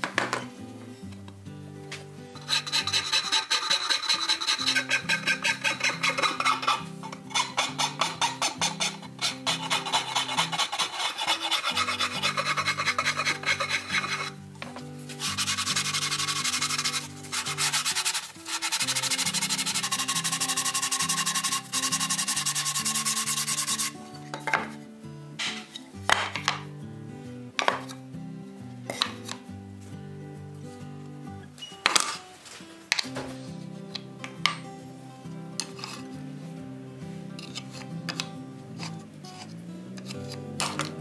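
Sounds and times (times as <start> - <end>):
file rasping on wood: 2.4 - 14.4, 15.2 - 24.0
sandpaper strokes: 2.4 - 14.4, 15.1 - 24.0
background music with bass: 35.0 - 41.0.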